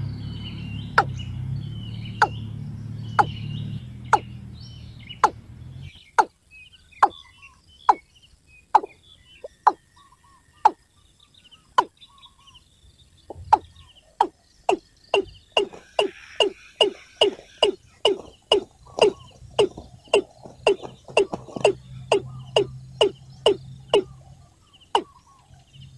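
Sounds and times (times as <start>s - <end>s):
small birds twittering: 0.0s - 25.9s
bird calling short falling notes: 2.0s - 4.4s, 13.3s - 24.2s.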